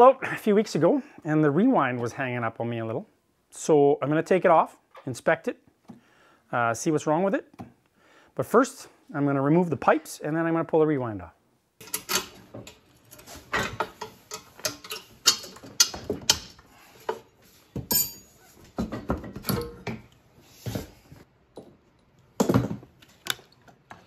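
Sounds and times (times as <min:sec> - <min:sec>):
metal clicks and clanks: 0:11.8 - 0:17.2.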